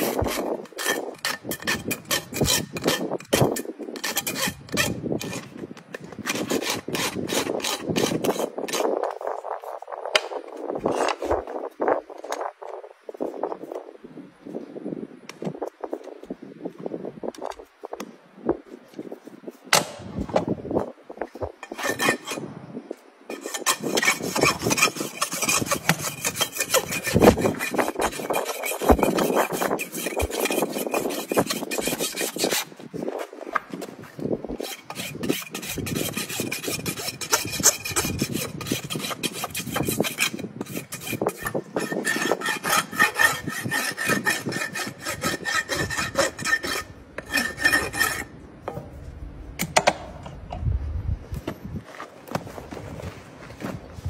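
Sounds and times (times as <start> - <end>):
rasp filing a hoof: 0.0 - 9.6, 21.6 - 22.5, 23.3 - 33.8, 34.5 - 48.4.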